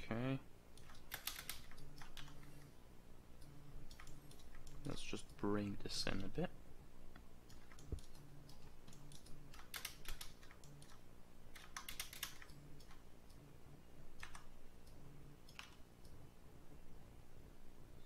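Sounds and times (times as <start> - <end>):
faint low hum: 0.0 - 18.0
computer keyboard keystrokes: 0.8 - 2.7, 3.4 - 5.0, 7.5 - 13.4, 14.2 - 16.2.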